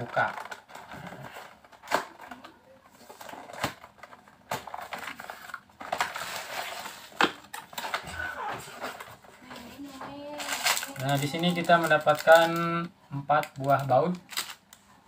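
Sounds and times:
cardboard rustling and scraping: 0.0s - 11.3s.

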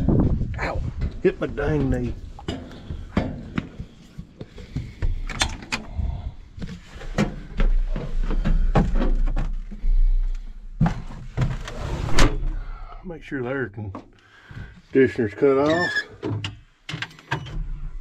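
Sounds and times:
footsteps on metal steps: 0.2s - 11.6s.

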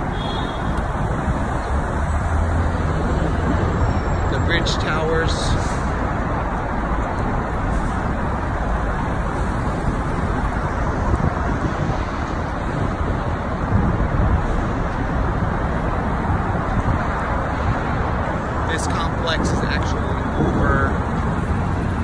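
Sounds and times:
road traffic noise: 0.0s - 22.0s.

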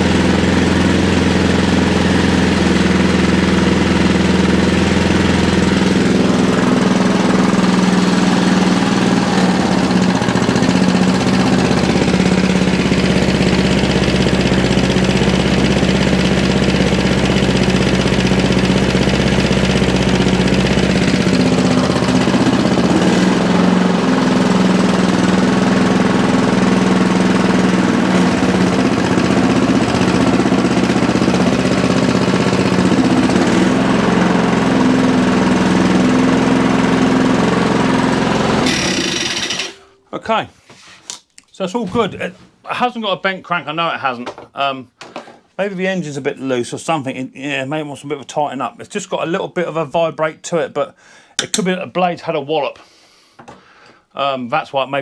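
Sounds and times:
lawnmower engine idling: 0.0s - 40.0s.

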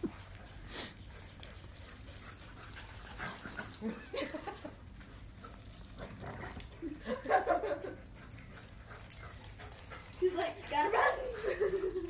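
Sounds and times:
dogs whining and yipping: 5.5s - 12.0s.

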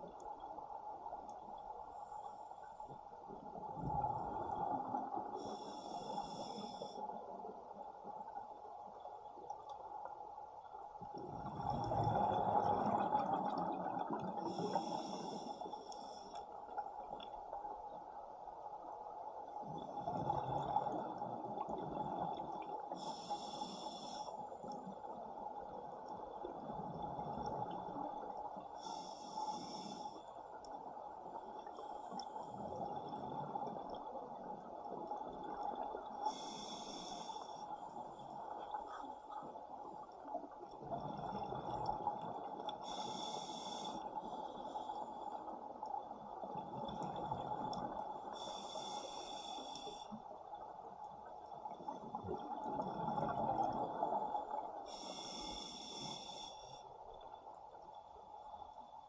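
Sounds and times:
underwater exhaust bubbles: 11.0s - 17.8s, 19.4s - 56.5s
hissing regulator inhalations: 14.5s - 16.5s, 22.9s - 24.4s, 28.8s - 30.3s, 36.3s - 37.7s, 42.8s - 45.0s, 48.3s - 50.2s, 54.9s - 56.8s.

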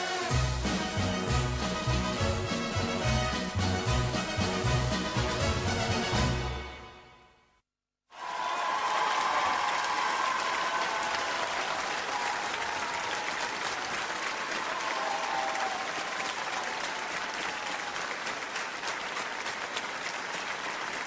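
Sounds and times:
audience applauding: 8.1s - 21.0s.

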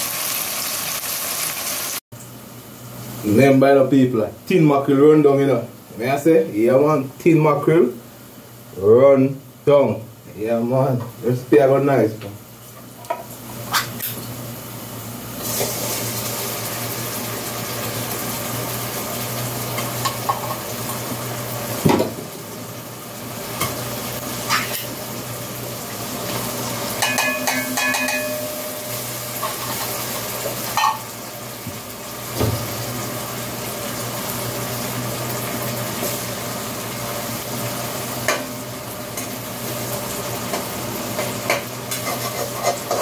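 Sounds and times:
food sizzling in a pot: 0.0s - 3.5s, 12.4s - 43.0s
spoon clinking against pot: 27.0s - 28.9s.

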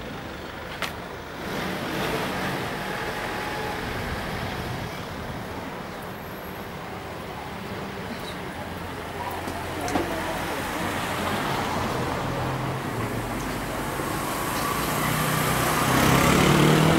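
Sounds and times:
road vehicles humming: 0.0s - 16.9s
vehicle passing by: 10.6s - 16.9s.

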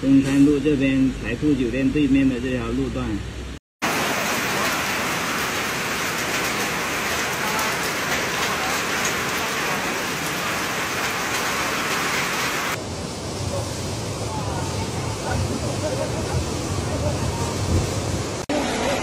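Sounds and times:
heavy rain on water: 3.8s - 19.0s.

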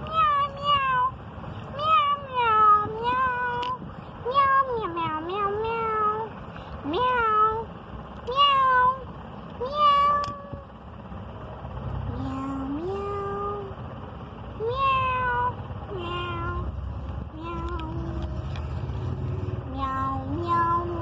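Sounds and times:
cat meowing: 8.3s - 9.0s, 9.6s - 10.6s, 14.6s - 16.7s, 17.4s - 18.5s, 19.7s - 21.0s.

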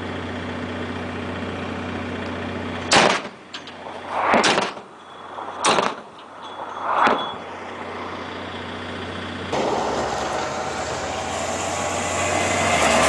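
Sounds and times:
low engine hum: 0.0s - 13.0s
autocannon shots with echo: 2.9s - 3.4s.

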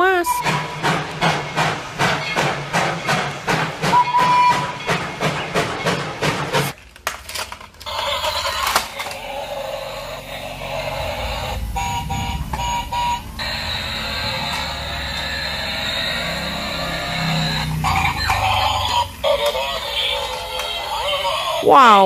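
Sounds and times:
toy train motor whirring: 6.7s - 21.8s.

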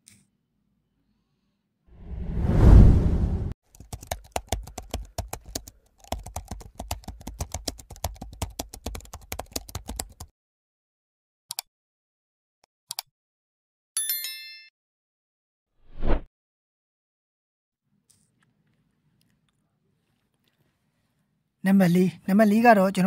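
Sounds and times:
whoosh: 2.0s - 3.6s
keyboard typing clicks: 3.8s - 10.3s.

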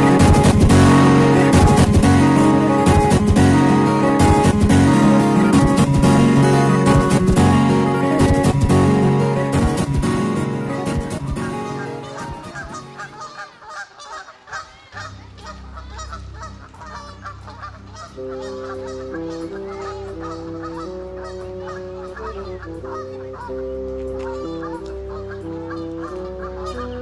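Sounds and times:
soft sustained music chords: 0.0s - 13.7s, 15.1s - 27.0s
goslings peeping: 11.0s - 27.0s.

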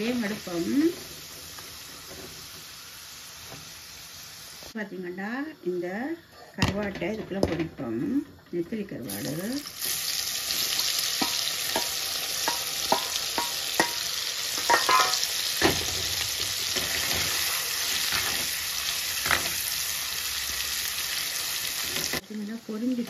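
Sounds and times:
fish sizzling in hot oil: 0.0s - 4.8s, 9.1s - 23.0s
metal spoon clinking against pot: 11.2s - 15.2s.

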